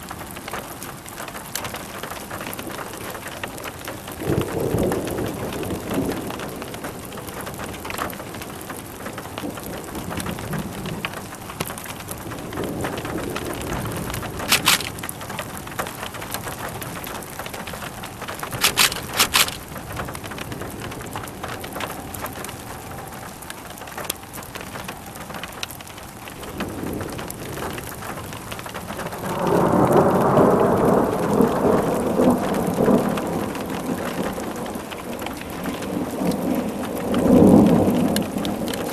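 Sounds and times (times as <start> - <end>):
heavy rain: 0.0 - 38.9
thunder rumbling: 11.8 - 23.4, 26.4 - 38.9
sharp clicks: 14.5 - 15.0, 18.5 - 19.6.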